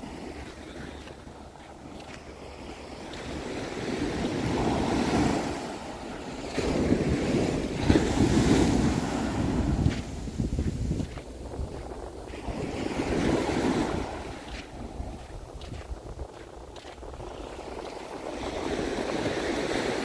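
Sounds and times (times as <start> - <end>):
ocean surf breaking: 0.0 - 20.0
wind rumbling on microphone: 0.0 - 20.0.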